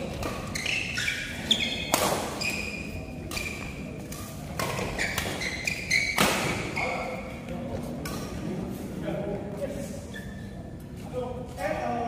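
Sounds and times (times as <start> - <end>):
rackets hitting shuttlecock: 0.0 - 6.8
shoes squeaking on floor: 0.0 - 7.4, 9.7 - 10.9.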